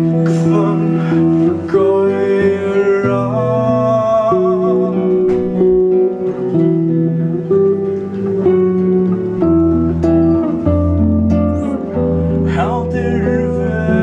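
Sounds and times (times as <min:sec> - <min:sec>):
man singing with vibrato: 0:00.0 - 0:06.2, 0:12.0 - 0:14.0
acoustic guitars playing chords: 0:00.0 - 0:14.0.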